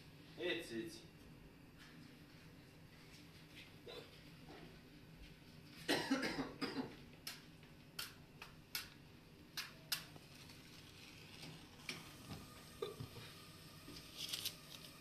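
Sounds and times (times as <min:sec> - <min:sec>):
person coughing: 0:05.9 - 0:07.0, 0:12.8 - 0:13.1.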